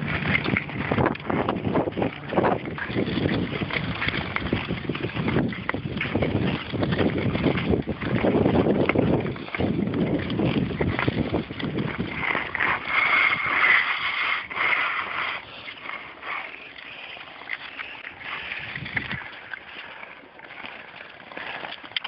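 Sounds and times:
deep rumble: 0:00.0 - 0:13.5
ice skates scraping over ice: 0:00.0 - 0:22.0.

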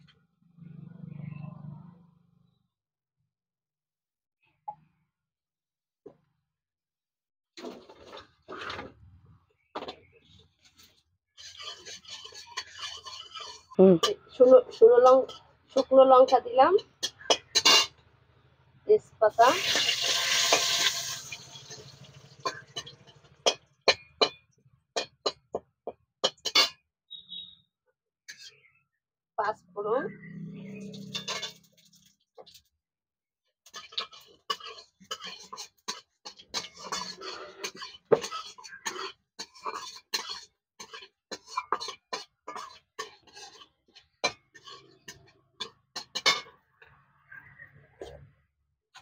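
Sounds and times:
metal spatula scraping a wok: 0:07.6 - 0:09.0, 0:10.2 - 0:18.0, 0:19.4 - 0:24.4, 0:25.0 - 0:25.5, 0:26.2 - 0:27.5, 0:28.3 - 0:28.7, 0:30.6 - 0:32.6, 0:33.6 - 0:46.6
metal spatula knocking on wok: 0:17.0 - 0:17.9
frying sizzle: 0:19.4 - 0:23.6, 0:33.7 - 0:43.6.

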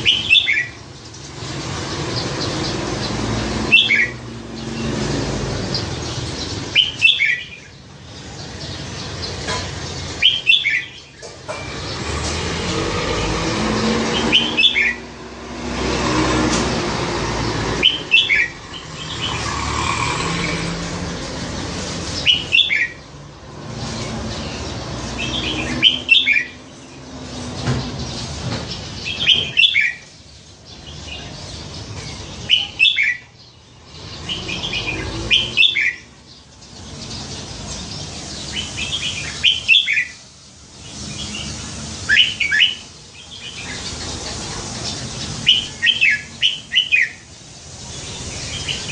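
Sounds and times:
bulbul singing: 0:00.0 - 0:48.9.

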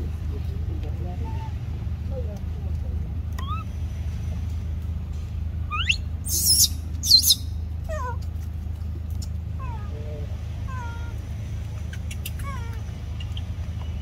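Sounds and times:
baby monkey crying: 0:03.4 - 0:03.7, 0:05.7 - 0:08.2, 0:10.7 - 0:11.2, 0:12.0 - 0:13.5.

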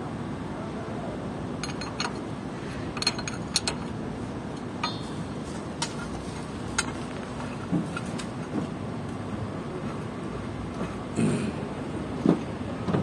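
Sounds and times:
low background rumble: 0:00.0 - 0:13.0
metal tools clinking: 0:01.6 - 0:07.1.

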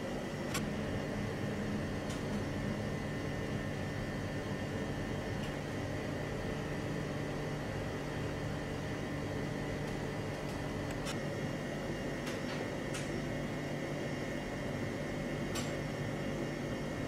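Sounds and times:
kitchen machinery hum and hiss: 0:00.0 - 0:17.0.

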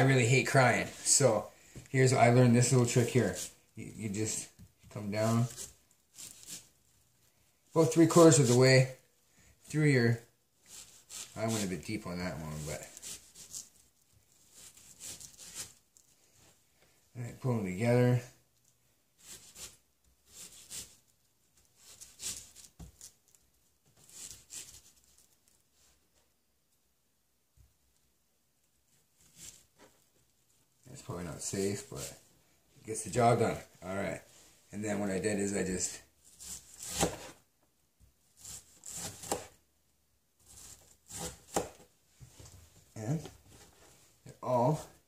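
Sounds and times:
knife slicing through onion: 0:02.6 - 0:03.6, 0:05.2 - 0:06.7, 0:07.8 - 0:08.6, 0:10.6 - 0:13.8, 0:14.4 - 0:15.8, 0:19.2 - 0:21.0, 0:21.8 - 0:23.1, 0:36.2 - 0:37.4, 0:38.4 - 0:39.6, 0:40.4 - 0:41.9
knife chopping onion on board: 0:36.4 - 0:37.3, 0:38.4 - 0:39.5, 0:40.6 - 0:41.8.

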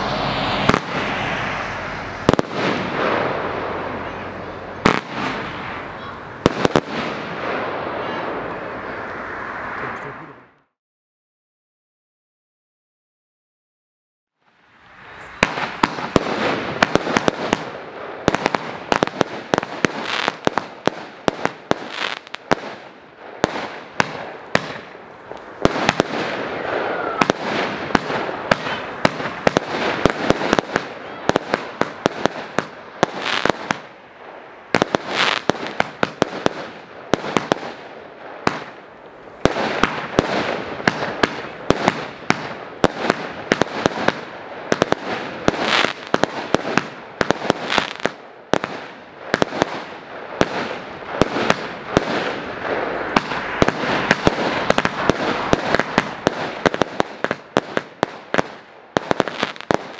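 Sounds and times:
fireworks cracks and pops: 0:06.4 - 0:07.2, 0:18.3 - 0:22.8, 0:23.4 - 0:33.9, 0:34.7 - 0:37.8, 0:38.4 - 0:59.9.

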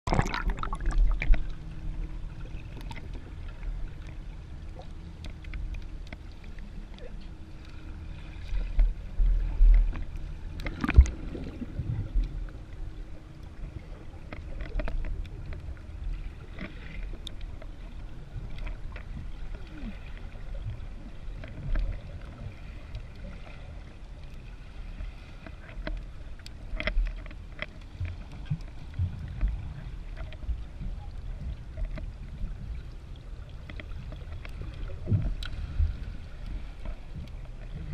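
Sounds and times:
bubbling: 0:00.0 - 0:01.6, 0:09.5 - 0:12.5
underwater rumble of moving water: 0:00.0 - 0:37.9.

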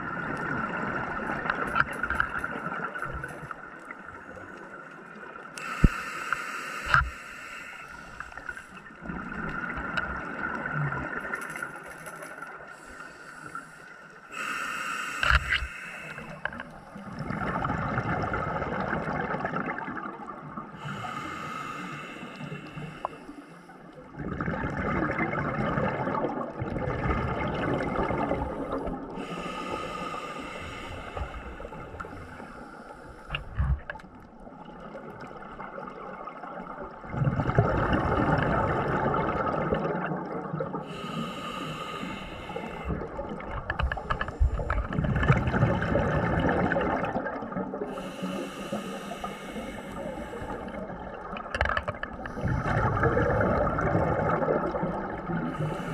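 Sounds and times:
hissing regulator inhalations: 0:05.6 - 0:08.9, 0:12.7 - 0:17.2, 0:20.8 - 0:23.8, 0:28.6 - 0:33.6, 0:40.8 - 0:43.1, 0:47.9 - 0:50.9, 0:55.5 - 0:55.9
exhaled bubbles rushing: 0:17.1 - 0:20.6, 0:24.2 - 0:29.2, 0:34.8 - 0:40.8, 0:42.9 - 0:48.0, 0:50.5 - 0:55.7.

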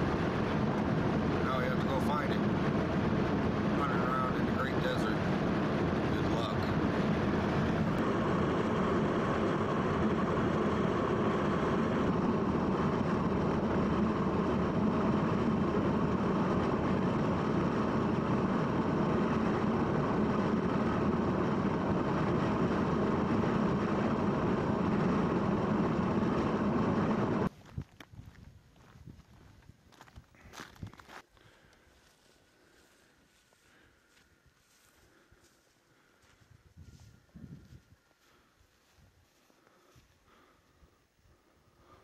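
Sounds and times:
vehicle engine and road noise: 0:00.0 - 0:31.2.

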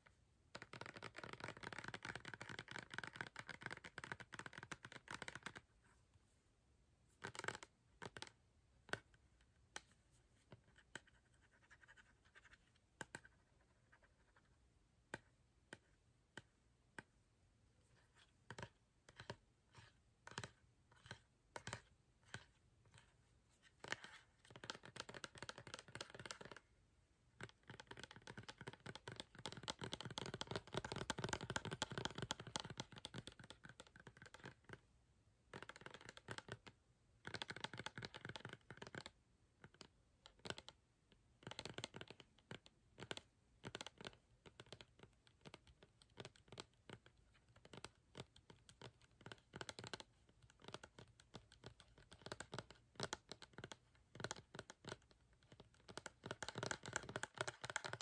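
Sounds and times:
fingernails tapping on plastic bottle: 0:23.8 - 0:26.6, 0:41.4 - 0:58.0.

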